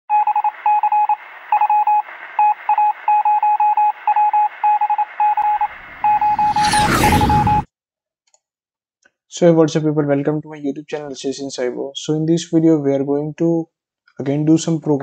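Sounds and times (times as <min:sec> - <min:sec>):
electronic morse-like beeps: 0:00.1 - 0:07.7
low rumble: 0:05.4 - 0:07.7.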